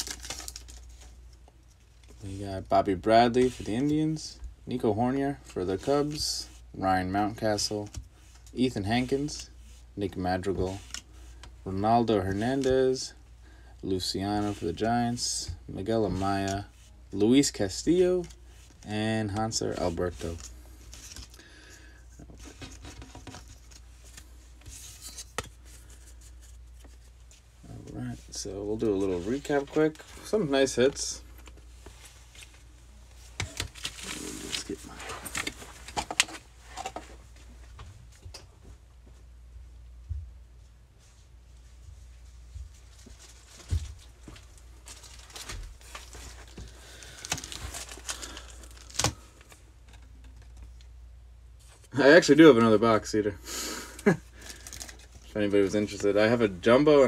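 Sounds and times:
trading cards rustling and clicking: 0:00.0 - 0:02.4, 0:15.8 - 0:21.5, 0:22.2 - 0:28.0, 0:28.7 - 0:37.1, 0:43.0 - 0:50.9, 0:54.0 - 0:56.5.

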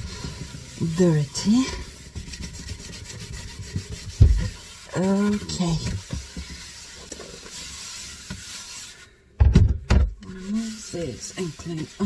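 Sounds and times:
sponge scrubbing shelf: 0:00.0 - 0:09.2, 0:10.2 - 0:12.0
dull thump: 0:09.4 - 0:10.2.

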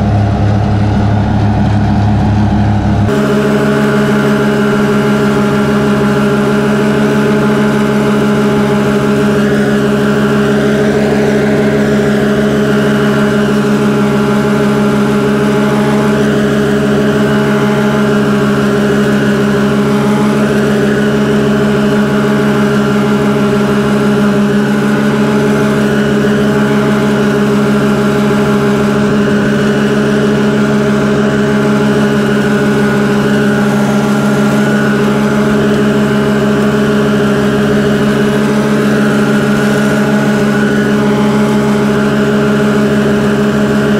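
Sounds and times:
ride-on mower engine droning: 0:00.0 - 0:43.9.

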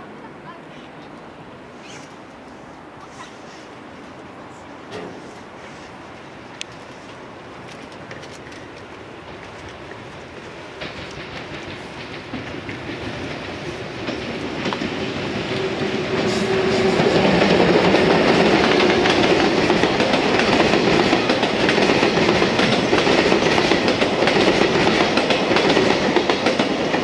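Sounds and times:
electric locomotive passing: 0:00.0 - 0:27.0
train wheels clattering over rail joints: 0:07.6 - 0:27.0.

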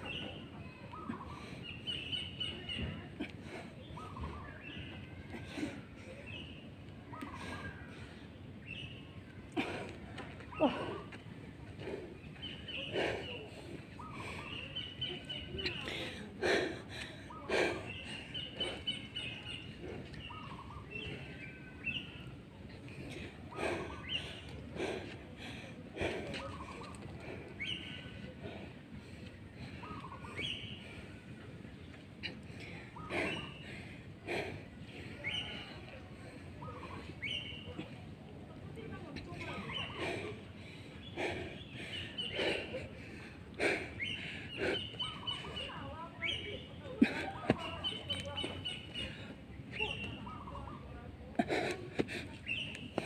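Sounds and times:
small birds chirping: 0:00.0 - 0:53.0
sharp exhalations: 0:09.6 - 0:38.1, 0:39.5 - 0:50.5.

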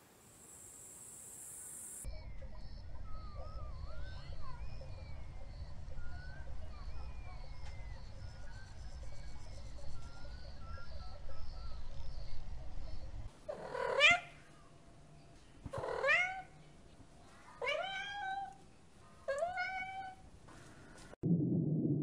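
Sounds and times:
low steady rumble: 0:02.1 - 0:13.5, 0:21.2 - 0:22.0
cat meowing: 0:13.5 - 0:14.4, 0:15.7 - 0:16.6, 0:17.6 - 0:18.6, 0:19.3 - 0:20.2.

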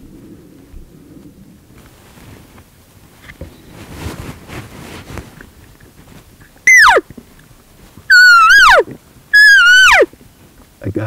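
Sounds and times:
faint rustling: 0:00.0 - 0:10.8
elk calls: 0:06.7 - 0:07.0, 0:08.1 - 0:10.1.

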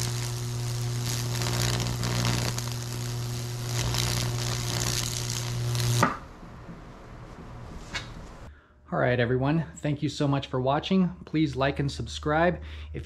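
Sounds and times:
electric arcs crackling: 0:00.0 - 0:06.3.

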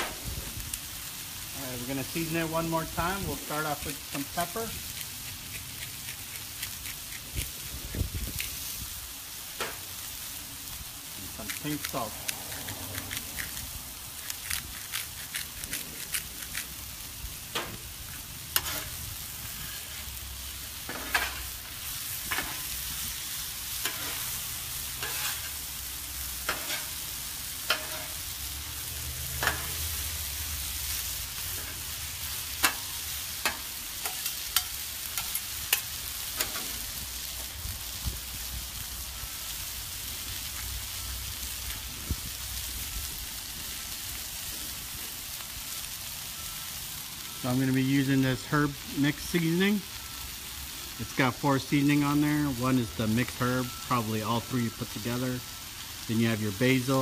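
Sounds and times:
food sizzling on griddle: 0:00.0 - 0:57.0
metal spatulas scraping and clanking: 0:18.6 - 0:20.1, 0:20.9 - 0:21.6, 0:22.3 - 0:22.7, 0:23.8 - 0:24.3, 0:25.0 - 0:25.6, 0:26.4 - 0:27.0, 0:27.6 - 0:28.2, 0:29.3 - 0:29.9, 0:31.5 - 0:31.9, 0:32.6 - 0:36.8.

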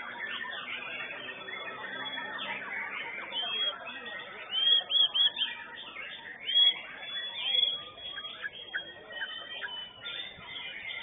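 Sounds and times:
birds whistling and trilling: 0:00.0 - 0:11.0
loud sharp bird whistles: 0:04.4 - 0:05.6, 0:06.4 - 0:08.6.

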